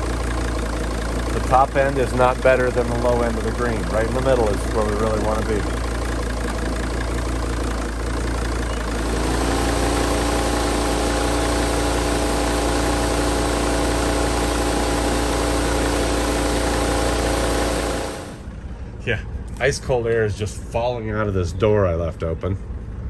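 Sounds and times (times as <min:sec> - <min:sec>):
diesel engine idling: 0:00.0 - 0:23.0
rising whine: 0:08.6 - 0:18.5.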